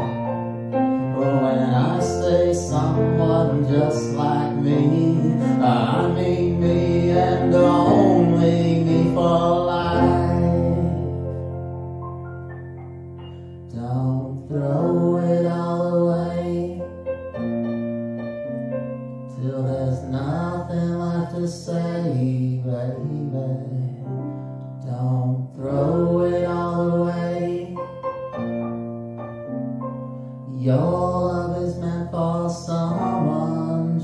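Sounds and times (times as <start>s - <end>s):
electric keyboard: 0.0s - 34.0s
man and woman singing ballad: 1.1s - 11.2s, 13.7s - 16.8s, 19.4s - 24.0s, 24.8s - 27.8s, 30.5s - 34.0s.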